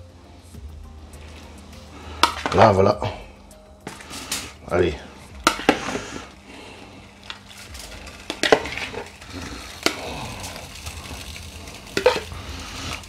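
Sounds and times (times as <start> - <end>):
water boiling: 3.9 - 13.0
squid sliding into pan: 5.5 - 6.4, 7.1 - 13.0.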